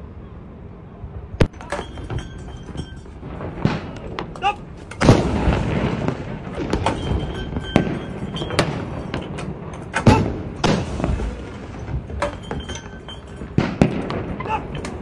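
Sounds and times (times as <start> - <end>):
cannon shots echoing: 3.2 - 15.0.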